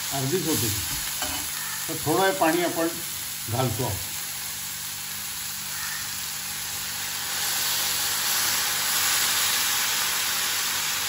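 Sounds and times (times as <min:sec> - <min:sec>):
greens sizzling in a hot pan: 0:00.0 - 0:11.0
water poured into hot pan: 0:06.2 - 0:11.0.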